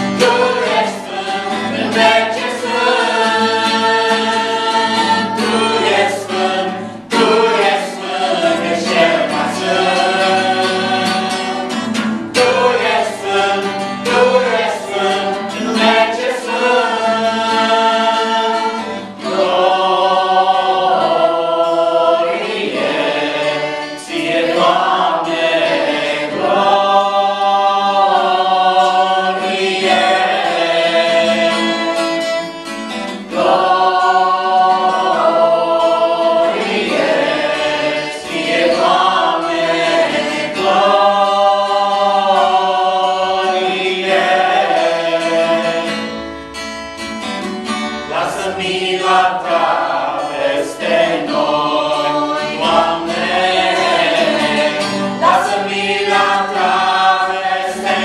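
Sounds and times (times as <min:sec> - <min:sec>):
acoustic guitar: 0:00.0 - 0:58.0
group singing a worship song: 0:00.0 - 0:58.0.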